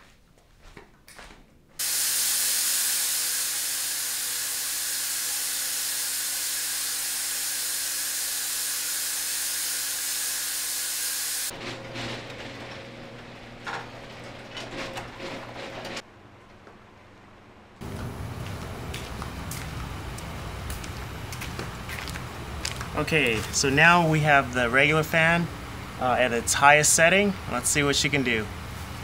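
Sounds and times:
fog machine hissing: 1.8 - 11.5.

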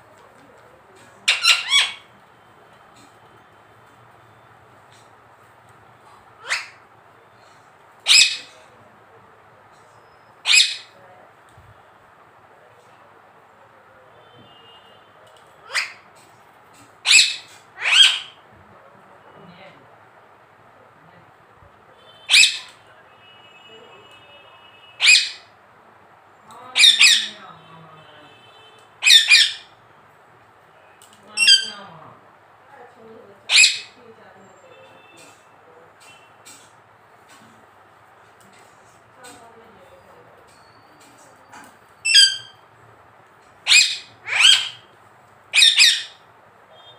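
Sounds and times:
parakeet shrill calls: 1.3 - 2.1, 8.1 - 8.5, 10.4 - 11.0, 17.0 - 18.4, 22.3 - 22.8, 25.0 - 25.5, 26.8 - 27.4, 29.0 - 29.7, 31.4 - 31.8, 33.5 - 34.0, 42.0 - 42.6, 43.6 - 44.9, 45.5 - 46.2.

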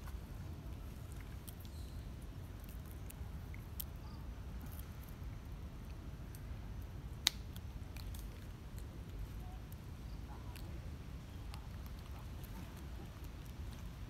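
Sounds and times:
low outdoor rumble: 0.0 - 14.0
monkeys chewing: 0.8 - 4.0, 7.2 - 14.0.

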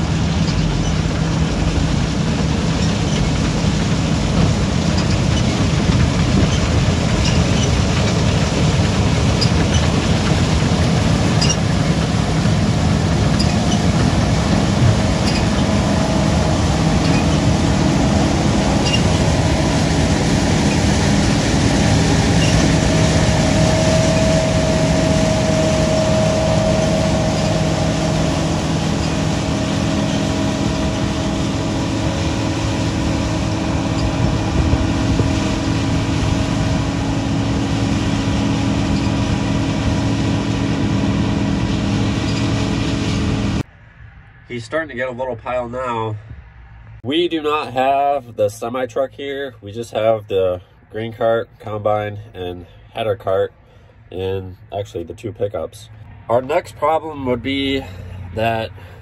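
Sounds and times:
farm machine engine rumble: 0.0 - 43.7
faint mechanical whine: 0.0 - 59.0.

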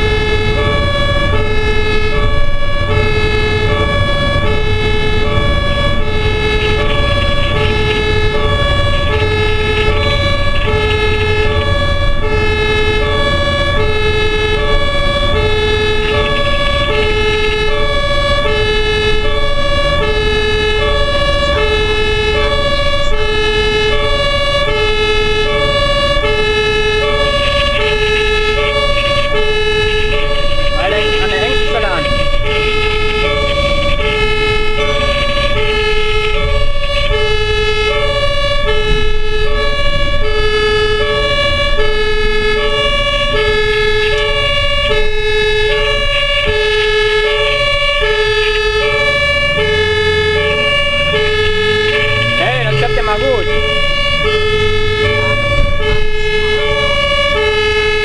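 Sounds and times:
engine and tyres rumbling: 0.0 - 58.0
two-tone ambulance siren: 0.0 - 58.0.

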